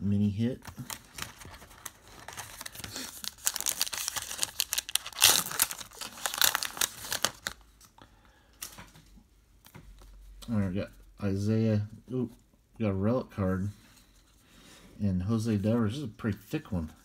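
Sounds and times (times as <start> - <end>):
foil wrapper tearing and crinkling: 0.7 - 7.7.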